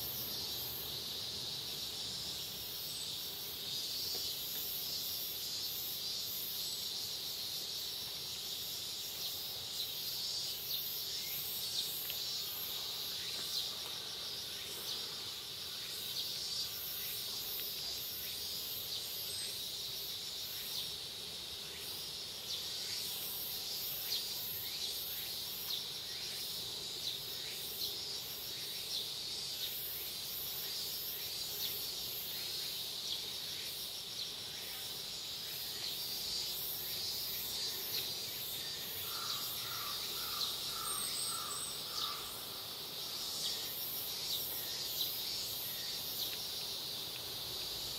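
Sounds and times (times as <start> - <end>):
small ticks: 11.7 - 12.4, 17.3 - 18.0, 46.1 - 47.9
high-pitched insect drone: 35.7 - 46.5.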